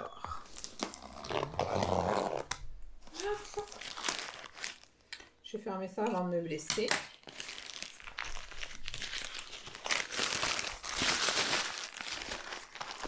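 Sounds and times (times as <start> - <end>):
plastic bag crinkling: 3.0 - 5.2, 7.0 - 13.0.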